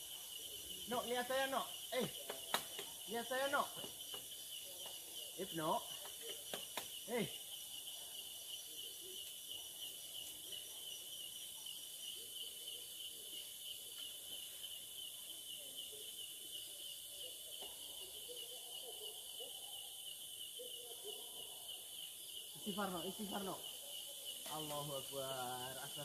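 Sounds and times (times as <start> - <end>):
night insects chirring: 0.0 - 26.0.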